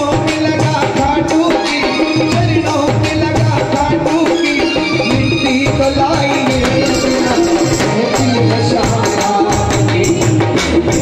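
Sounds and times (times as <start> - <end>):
devotional music over loudspeakers: 0.0 - 11.0
rattling percussion: 0.0 - 11.0
steady drum beat: 0.0 - 11.0.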